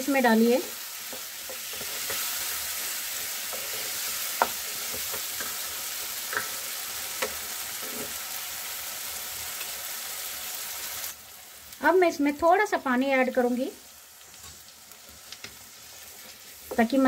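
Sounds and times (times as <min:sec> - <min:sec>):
food sizzling in a pan: 0:00.0 - 0:17.0.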